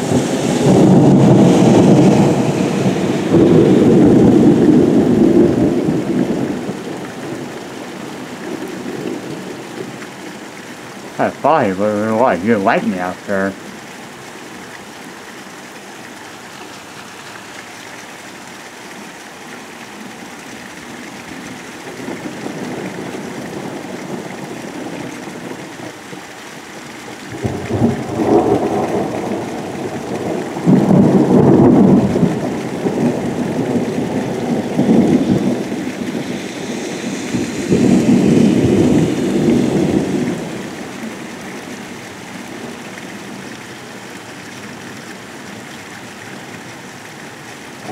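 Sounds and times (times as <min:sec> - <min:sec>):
thunder rolling: 0:00.0 - 0:06.7, 0:27.3 - 0:40.6
heavy rain: 0:00.0 - 0:47.9.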